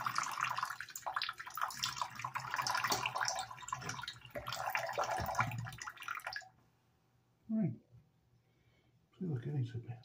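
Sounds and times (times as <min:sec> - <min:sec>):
faucet water running into sink: 0:00.0 - 0:06.5.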